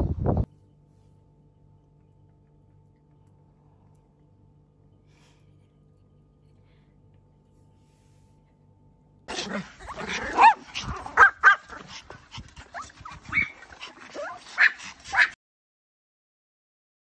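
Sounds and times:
small dogs yapping: 9.3s - 15.4s.

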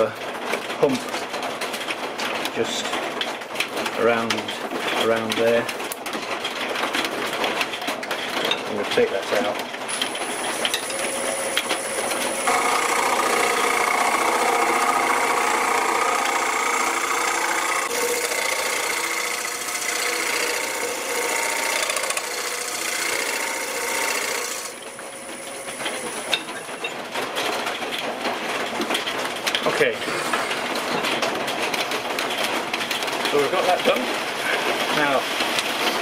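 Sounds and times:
whir of spinning lathe: 9.9s - 26.8s, 29.8s - 30.9s
scraper rasping on wood lathe: 10.0s - 26.6s.

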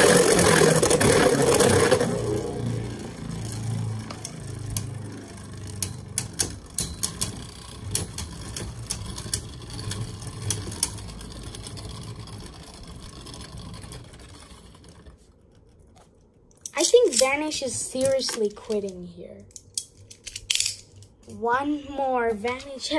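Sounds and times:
spinning tops clacking: 0.0s - 15.0s
spinning tops whirring: 0.0s - 15.7s.

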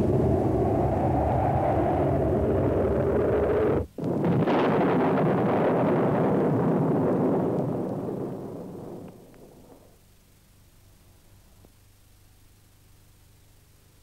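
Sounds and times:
explosion-like blast: 0.0s - 9.9s
low rumble: 0.0s - 10.0s.

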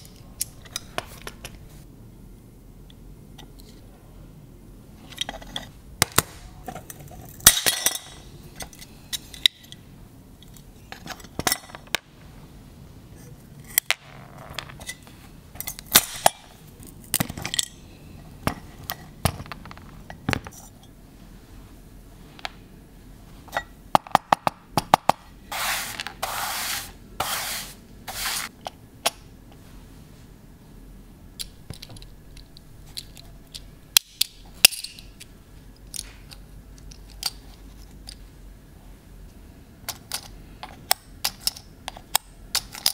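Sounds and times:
small metal parts clinking: 13.7s - 17.8s, 31.4s - 36.1s.

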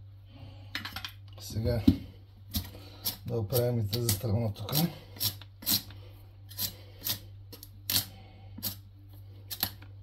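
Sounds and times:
peeler scraping squash rind: 2.5s - 8.8s.

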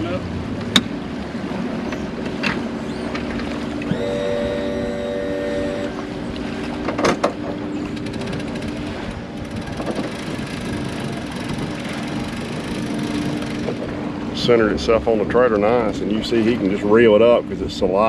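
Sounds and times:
sharp clunks: 6.7s - 8.5s.

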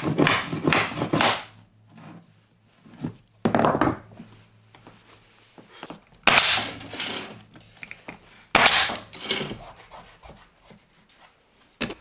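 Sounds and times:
nail gun firing: 0.0s - 1.5s, 6.2s - 7.0s, 8.5s - 9.2s.

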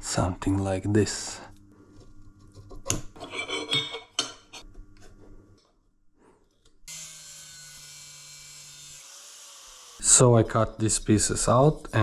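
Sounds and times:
metal clinks and scraping: 3.2s - 4.6s
electric power tool whine: 6.9s - 10.2s.

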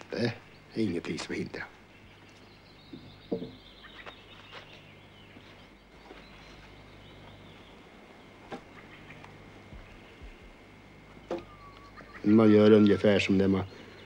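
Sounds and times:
steady low hum: 0.0s - 14.0s
wooden poles knocking: 3.0s - 3.6s.

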